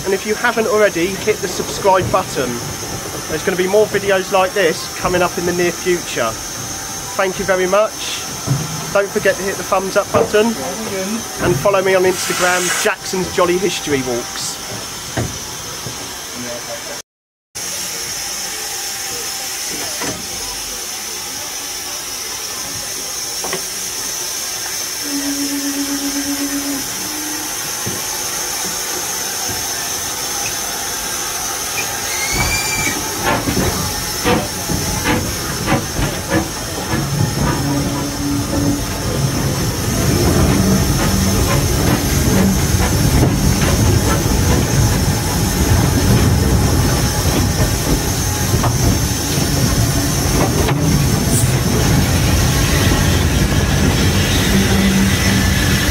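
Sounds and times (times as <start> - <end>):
locomotive knocks and clanks: 0.0 - 6.2, 7.3 - 10.8, 32.2 - 55.9
rail running noise: 0.0 - 17.0, 17.6 - 55.9
steam hissing: 0.0 - 17.0, 17.6 - 55.9.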